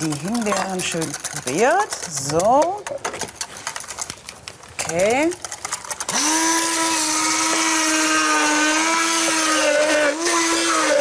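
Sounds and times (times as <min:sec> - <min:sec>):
stick blender motor whine: 0:05.9 - 0:11.0.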